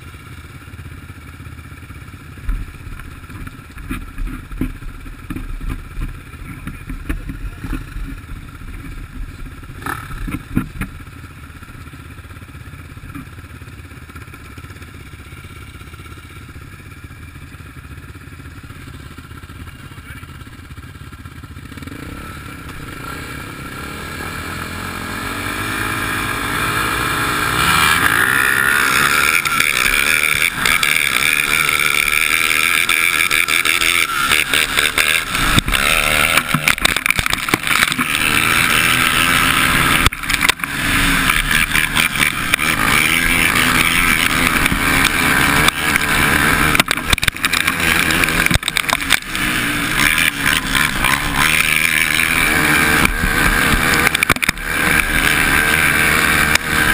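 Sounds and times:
quad engine revving: 0.0s - 56.9s
knocks over rough track: 25.3s - 56.9s.

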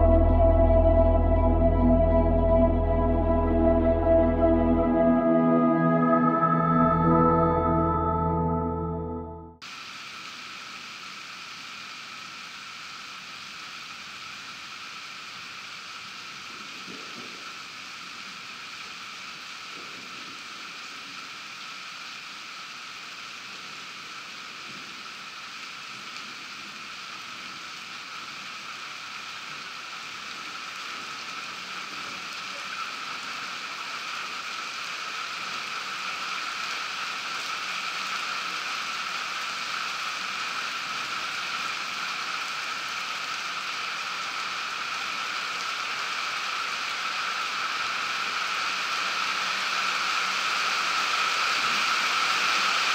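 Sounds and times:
rain falling: 0.0s - 5.0s, 9.6s - 52.9s.

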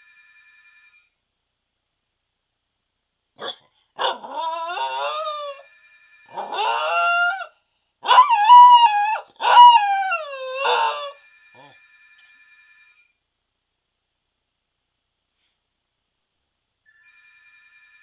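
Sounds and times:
dog yipping: 3.4s - 5.6s, 6.4s - 11.7s
dog howling: 4.0s - 5.6s, 6.4s - 7.5s, 8.1s - 11.8s.

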